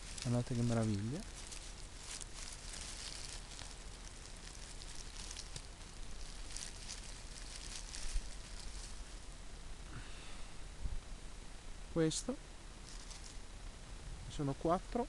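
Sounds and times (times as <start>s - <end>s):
dry leaves rustling: 0.0s - 9.6s, 12.7s - 13.6s.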